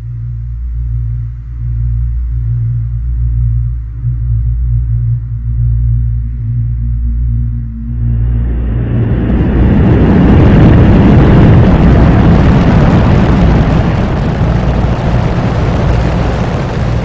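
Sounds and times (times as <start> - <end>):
rocket engines rumbling: 7.6 - 17.0.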